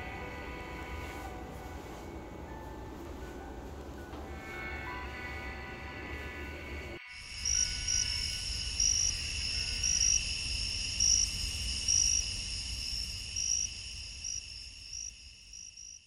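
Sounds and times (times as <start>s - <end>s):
crickets chirping: 4.6s - 16.0s.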